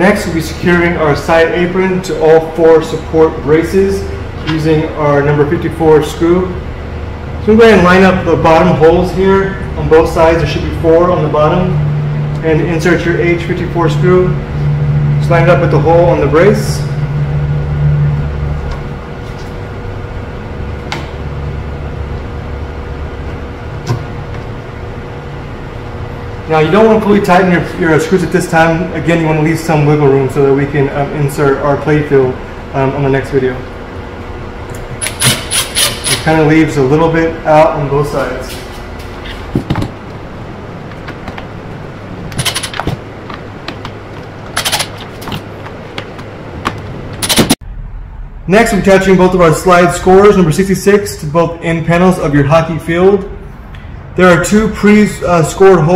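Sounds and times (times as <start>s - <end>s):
low mechanical hum: 0.0s - 55.9s
impact driver driving screws: 35.0s - 36.2s
handling clicks and knocks: 42.3s - 47.6s.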